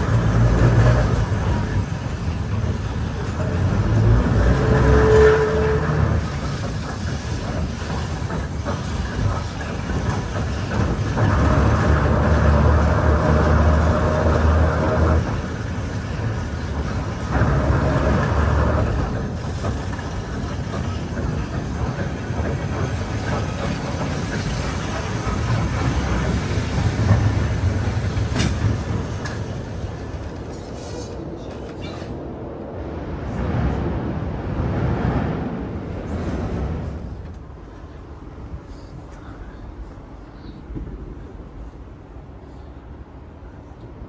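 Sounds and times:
tram wheels rolling on rails: 0.0 - 44.0.

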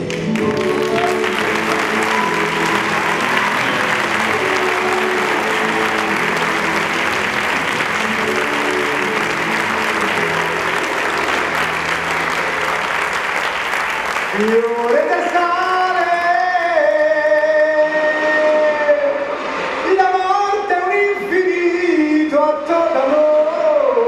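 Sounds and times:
audience applause: 0.0 - 16.2
music in sustained chords: 0.0 - 22.2.

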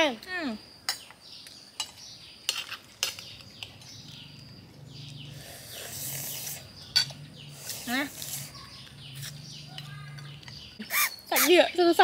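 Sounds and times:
birds chirping: 0.0 - 12.0
soft hissing suck: 5.2 - 6.8, 7.4 - 8.5.

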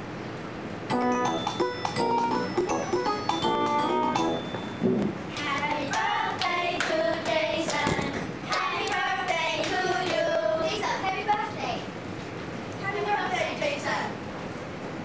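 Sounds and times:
hand claps: 5.4 - 10.2.

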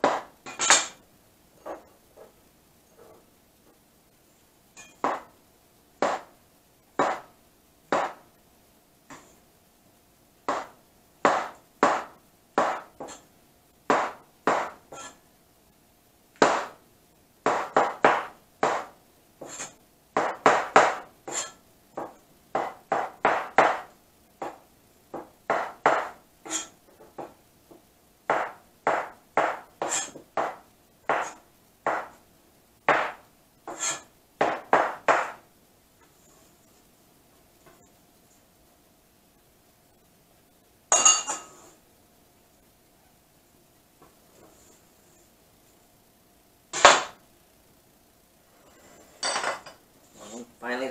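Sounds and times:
cleaver chopping on cutting board: 7.0 - 7.3, 10.5 - 13.2, 28.3 - 32.2.

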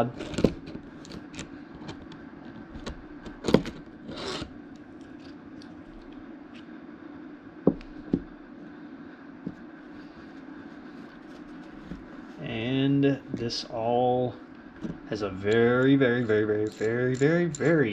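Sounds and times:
metal parts clicking and scraping: 15.4 - 17.9.

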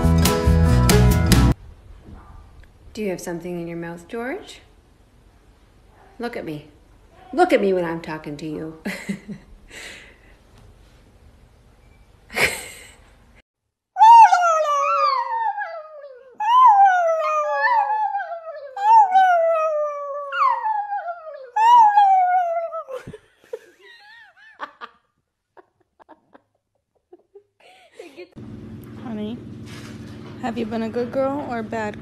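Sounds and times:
small dog howling: 14.0 - 23.0.

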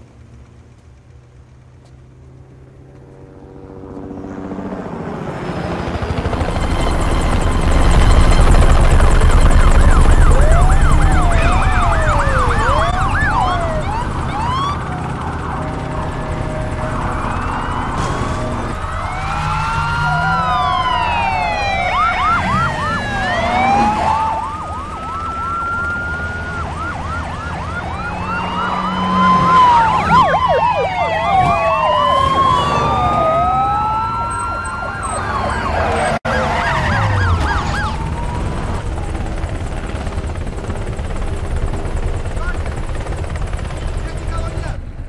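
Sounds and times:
police sirens wailing: 4.6 - 41.2
siren yelping sweeps: 6.1 - 39.2.

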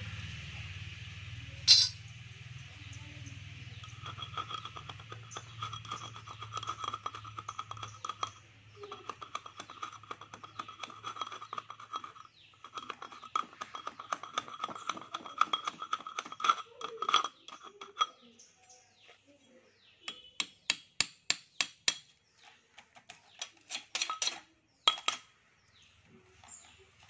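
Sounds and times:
metallic ringing: 1.6 - 2.0
wood tapping on steel plates: 3.9 - 18.2.

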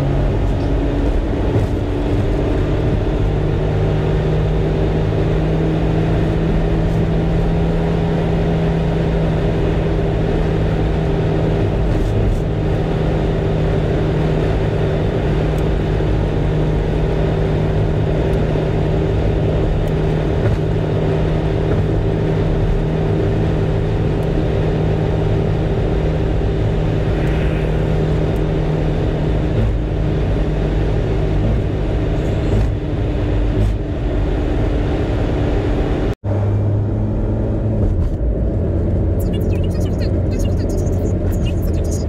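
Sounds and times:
engine running steadily: 0.0 - 42.0.

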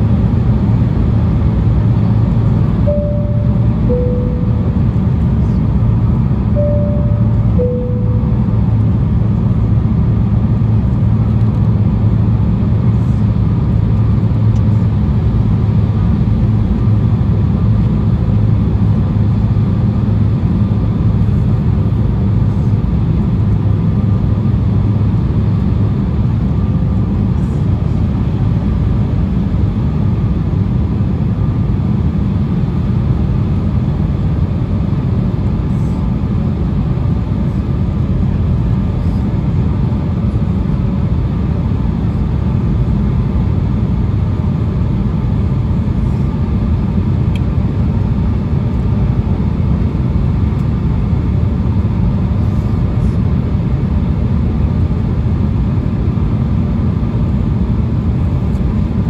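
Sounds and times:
airliner cabin rumble: 0.0 - 59.0
faint steady hum: 1.6 - 10.1.

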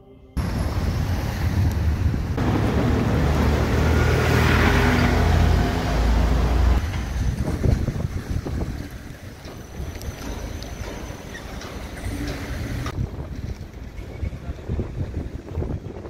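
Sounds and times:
vehicle engine passing: 0.4 - 6.8
city street traffic: 0.4 - 16.0.

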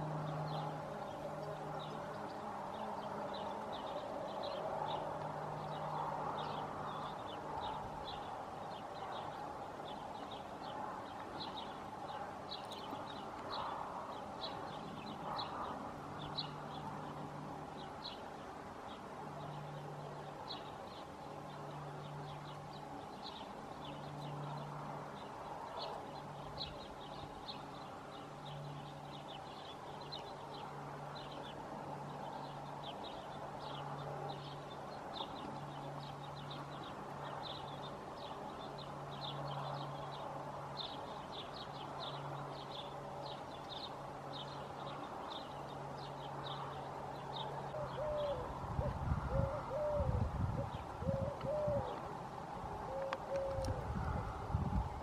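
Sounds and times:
small birds chirping: 0.0 - 55.0
dove cooing: 47.7 - 52.1, 52.8 - 54.2.

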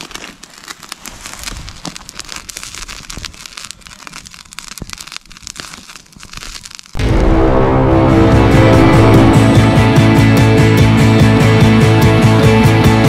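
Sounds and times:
campfire crackling and popping: 0.0 - 7.0.

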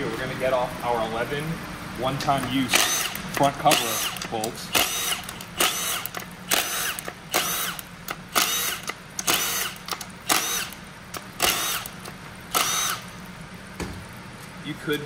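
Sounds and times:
power tool whining: 2.7 - 13.1.

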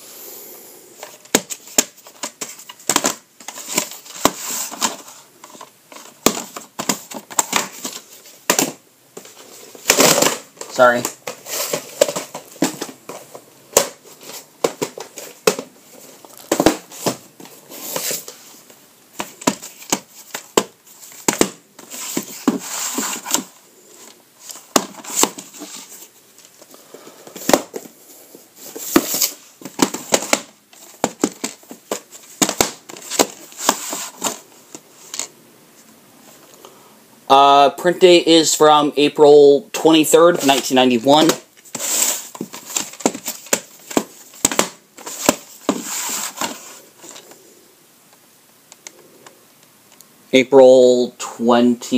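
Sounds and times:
sleeves rustling: 39.9 - 47.4.

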